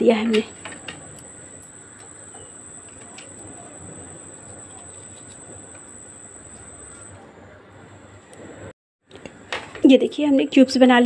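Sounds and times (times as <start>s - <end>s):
high-pitched whine: 0.5s - 8.7s.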